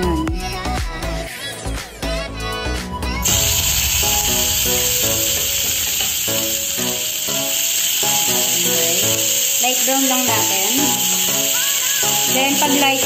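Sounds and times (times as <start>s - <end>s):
background music with a beat: 0.0s - 8.4s
onion sizzling in oil: 3.2s - 13.0s.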